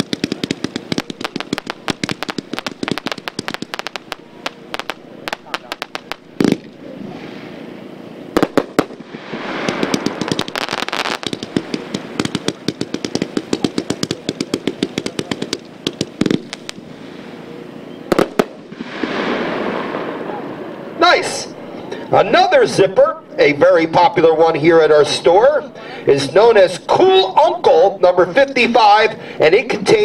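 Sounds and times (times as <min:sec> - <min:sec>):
firework cake firing shots: 0:00.0 - 0:06.9, 0:08.3 - 0:16.9, 0:18.1 - 0:20.4
loud single firework bangs: 0:00.0 - 0:07.6, 0:08.3 - 0:17.2, 0:18.1 - 0:20.7
firework hiss: 0:00.0 - 0:07.8, 0:08.4 - 0:17.5, 0:18.1 - 0:21.0.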